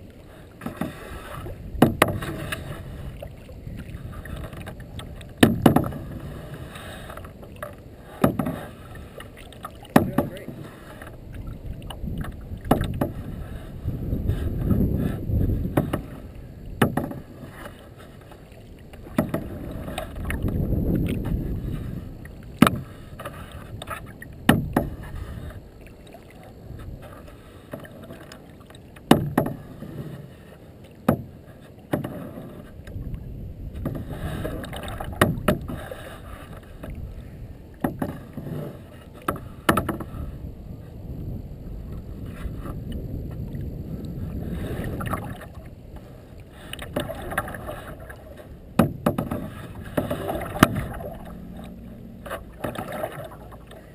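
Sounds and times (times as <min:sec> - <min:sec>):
paddle splashing in water: 0:00.0 - 0:40.4, 0:41.7 - 0:53.9
low rumbling: 0:49.4 - 0:53.9.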